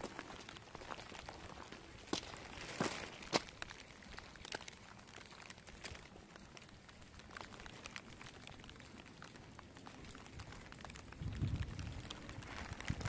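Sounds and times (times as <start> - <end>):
faint light rain: 0.0 - 13.0
raindrops ticking on phone: 3.2 - 13.0.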